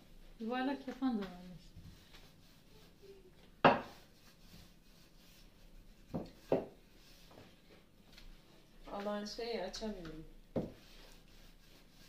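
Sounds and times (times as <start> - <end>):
rolling pin knocking on stone countertop: 3.6 - 4.0, 6.1 - 6.8.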